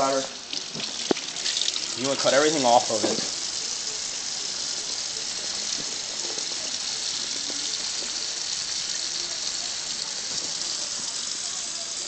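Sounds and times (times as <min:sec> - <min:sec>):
tap water splashing into sink: 0:00.0 - 0:03.6.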